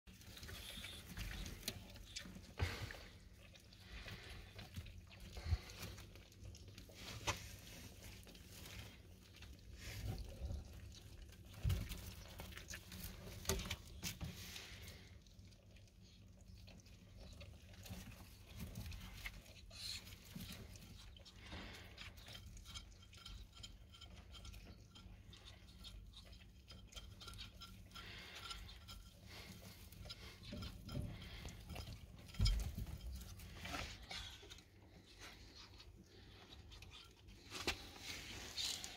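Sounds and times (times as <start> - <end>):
animals eating: 0.0 - 38.9
rustling in wood shavings: 32.5 - 38.9.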